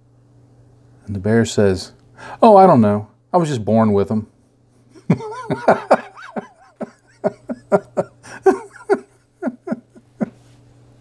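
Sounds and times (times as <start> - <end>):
person laughing: 5.0 - 10.5.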